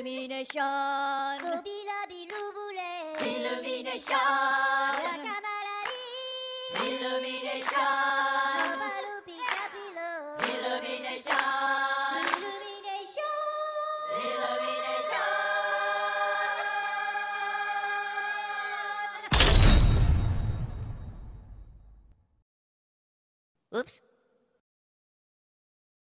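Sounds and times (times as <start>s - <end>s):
a cappella choir singing: 0.0s - 19.3s.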